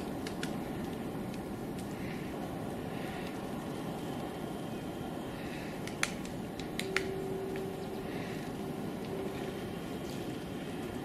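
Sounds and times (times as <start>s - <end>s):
woodpecker tapping on tree trunk: 0.0s - 0.9s, 5.8s - 7.1s
low background rumble: 0.0s - 11.0s.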